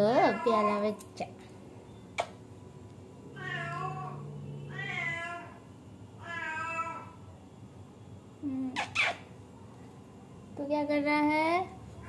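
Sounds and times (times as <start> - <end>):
kitten meowing: 3.4 - 5.5.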